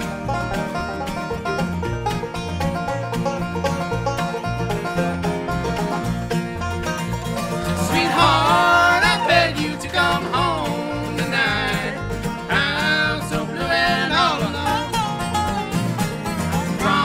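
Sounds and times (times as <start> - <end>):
bluegrass band playing: 0.0 - 17.0
plucked upright bass: 0.0 - 17.0
sliding lead melody: 0.0 - 17.0.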